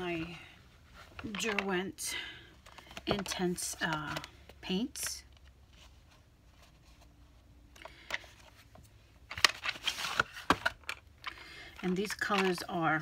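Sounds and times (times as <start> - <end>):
cardboard packaging handled: 8.0 - 11.0.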